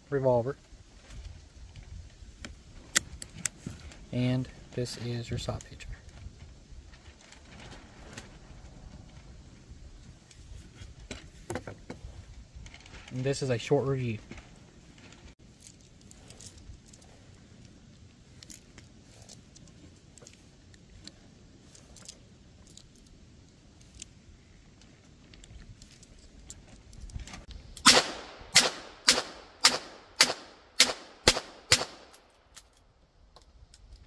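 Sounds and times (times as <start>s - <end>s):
metallic clicks of cartridges loading: 15.5s - 24.2s, 32.0s - 34.0s
revolver shots cracking: 27.8s - 32.1s.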